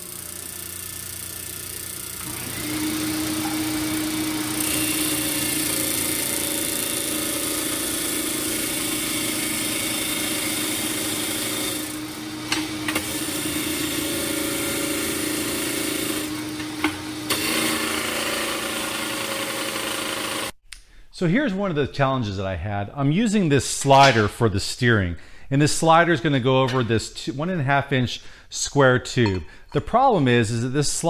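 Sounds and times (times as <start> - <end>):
disc sander motor hum: 0.0 - 20.6.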